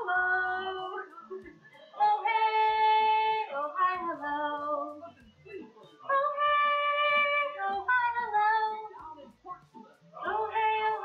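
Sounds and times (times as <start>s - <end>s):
woman singing children's song: 0.0s - 1.2s, 2.0s - 5.0s, 6.1s - 9.1s, 10.2s - 11.0s.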